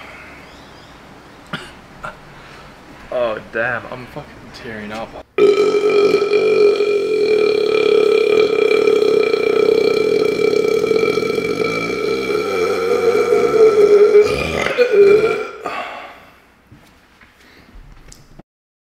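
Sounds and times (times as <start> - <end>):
man burping: 5.4 - 16.3.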